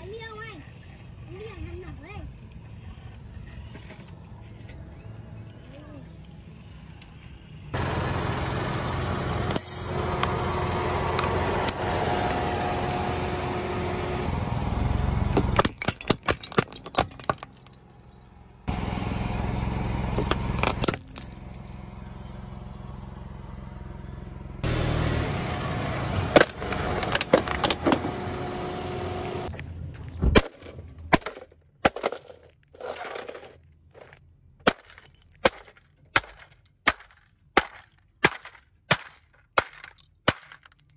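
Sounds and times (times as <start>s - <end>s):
car running: 0.1s - 38.9s
sharp cracks and snaps: 34.6s - 40.9s.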